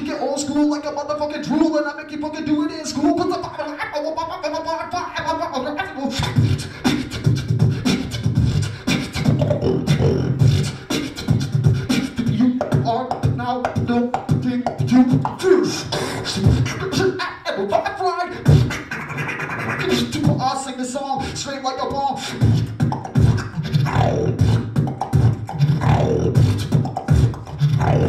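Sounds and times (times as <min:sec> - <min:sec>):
beatboxing into a microphone: 0:00.0 - 0:28.0
short pitched vocal notes: 0:05.8 - 0:17.2, 0:22.2 - 0:28.0.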